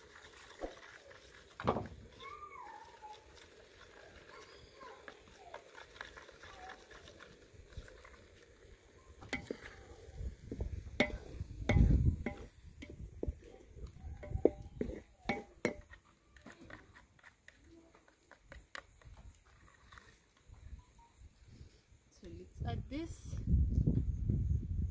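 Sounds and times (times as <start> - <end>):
wooden spoon knocking in metal pot: 9.2 - 9.7, 10.5 - 13.4, 14.2 - 16.0.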